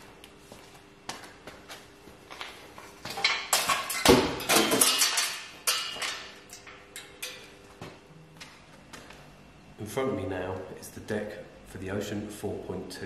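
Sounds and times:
faint steady hum: 0.0 - 13.0
hard objects clattering: 3.1 - 7.4.

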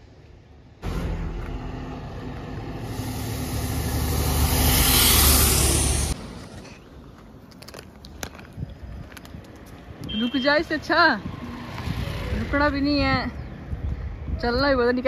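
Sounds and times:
bus diesel engine passing: 0.4 - 6.6.

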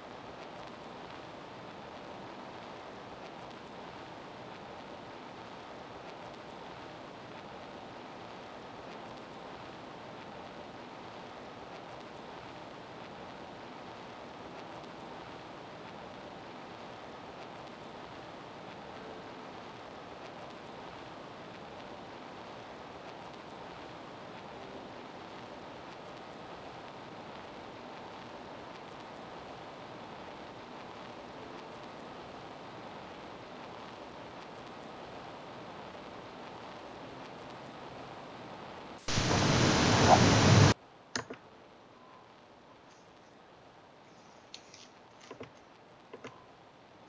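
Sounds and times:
burst of static noise: 0.0 - 47.0
steady hiss: 0.0 - 47.0
sharp clicks: 41.2 - 41.4.

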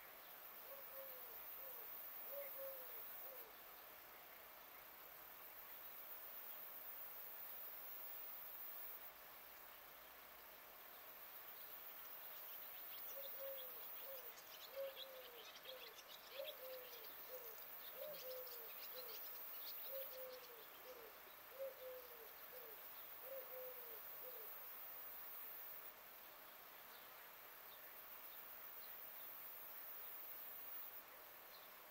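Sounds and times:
bird hooting: 0.6 - 3.5, 13.1 - 19.2, 19.9 - 24.6.

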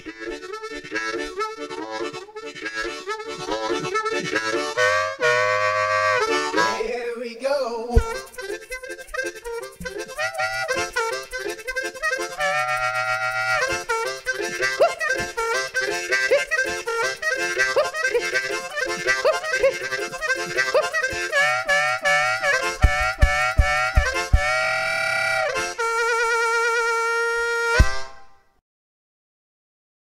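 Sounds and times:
fast harmonica music: 0.0 - 7.0, 8.0 - 28.4
deep thumps: 8.0 - 8.5, 22.6 - 24.7.

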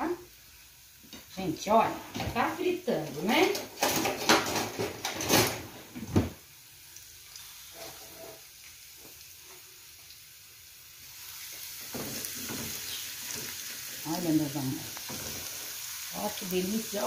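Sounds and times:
onion and garlic sizzling: 0.0 - 17.0
kitchen clatters and knocks: 2.0 - 6.4, 11.8 - 13.5.

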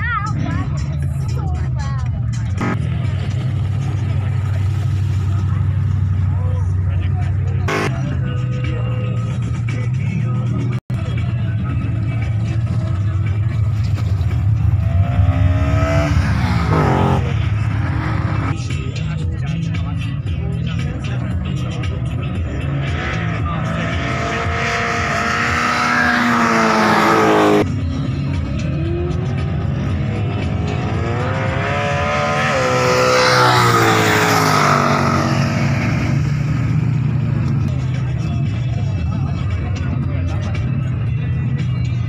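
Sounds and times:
low rumble of engines: 0.0 - 42.0
car engine accelerating hard: 2.4 - 8.1, 12.4 - 18.9, 20.8 - 40.6.

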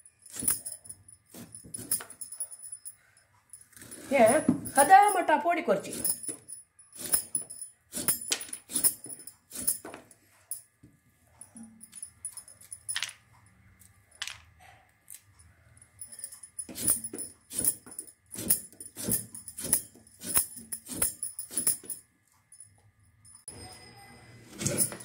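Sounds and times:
metal bangles clinking: 0.0 - 9.9, 11.4 - 13.2, 15.8 - 22.7.

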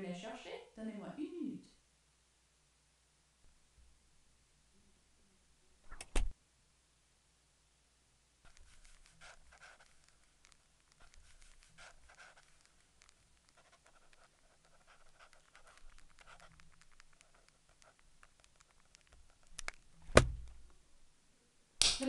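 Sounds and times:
pen scratching on paper: 8.5 - 19.5
paper rustling: 8.5 - 20.5
sharp loud knock: 20.1 - 20.4.

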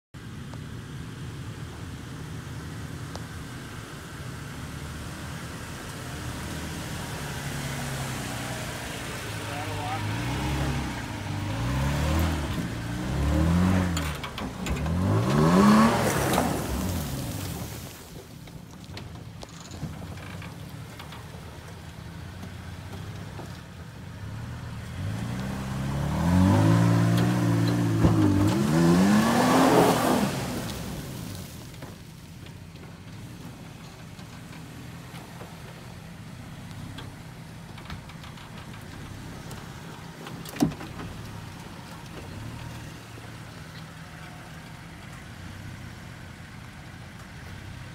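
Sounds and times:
tires spinning spraying dirt: 0.2 - 47.9
truck engine crawling through sand: 0.2 - 47.9.

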